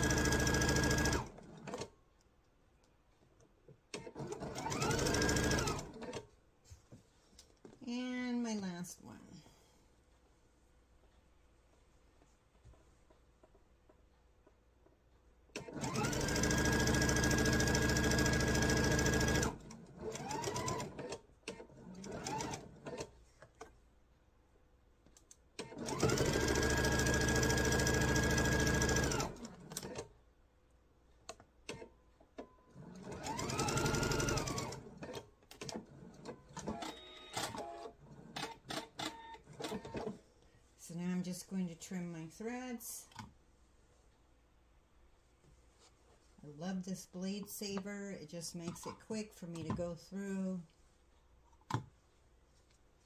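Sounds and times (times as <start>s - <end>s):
electric sewing machine stitching: 0.0s - 1.9s, 4.0s - 6.2s, 15.6s - 23.1s, 25.6s - 30.1s, 32.8s - 40.1s.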